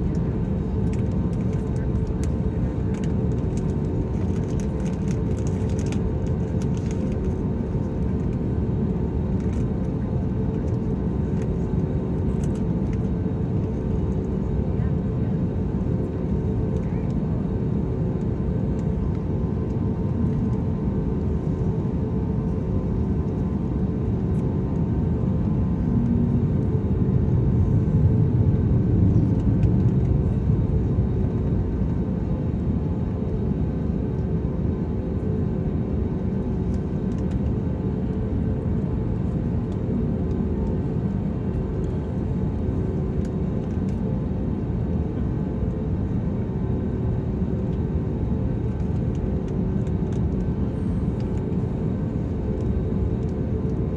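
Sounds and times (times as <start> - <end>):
aircraft engines rumbling: 0.0 - 53.9
constant cabin hum: 0.0 - 53.9.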